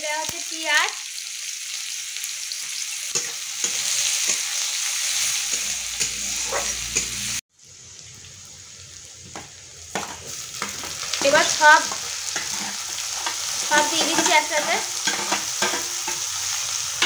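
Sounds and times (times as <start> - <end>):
onions sizzling in hot oil: 0.0 - 17.0
metal spatula scraping a pan: 3.1 - 7.4, 10.0 - 17.0.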